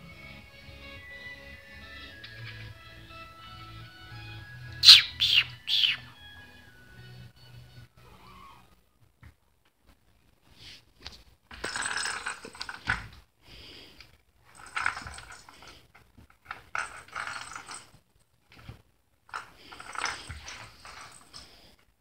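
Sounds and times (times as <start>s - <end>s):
ball rattling in plastic track: 11.5s - 13.2s, 14.6s - 17.9s.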